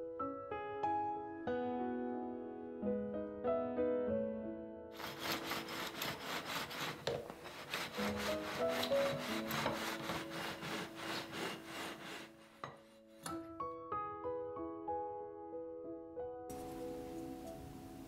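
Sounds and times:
soft piano music: 0.0 - 5.2, 7.8 - 18.0
utensil scraping strokes: 5.0 - 13.2.

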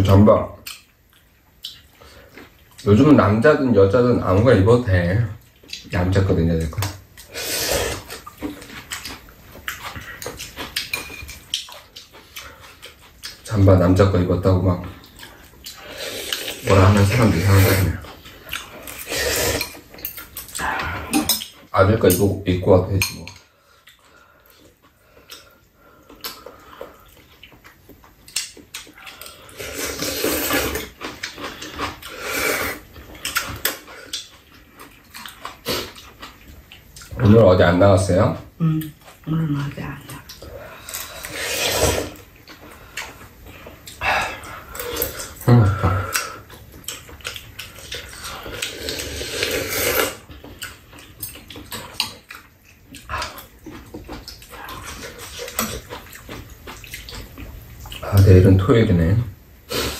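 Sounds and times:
noodles being slurped: 7.2 - 9.1, 15.7 - 19.9, 29.2 - 33.8, 40.8 - 42.3, 47.6 - 50.3
noodles slurped and chewed: 7.2 - 13.8, 14.4 - 21.7, 23.6 - 37.3, 38.9 - 58.3.

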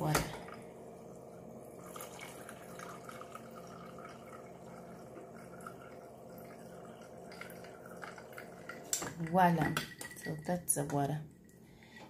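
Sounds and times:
steady hum: 0.0 - 12.0
water stream into glass of ice: 1.7 - 10.4.

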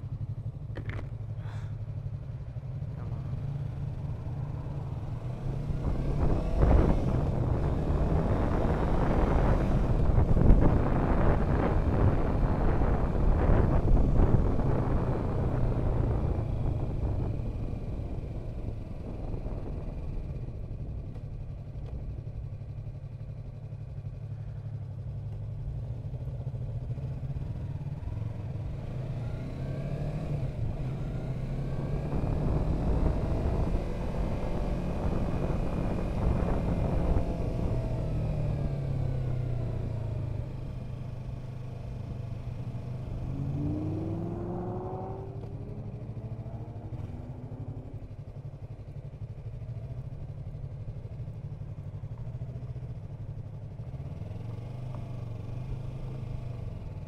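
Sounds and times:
motorcycle engine revving: 0.2 - 20.8, 26.8 - 57.0
wind noise on microphone: 5.6 - 20.6, 30.0 - 40.3.

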